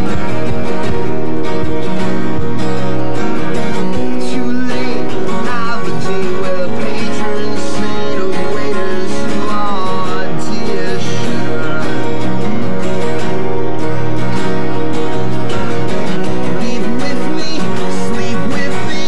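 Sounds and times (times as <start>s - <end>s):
acoustic guitar playing: 0.0s - 19.0s
man singing: 3.8s - 13.2s, 16.4s - 19.0s.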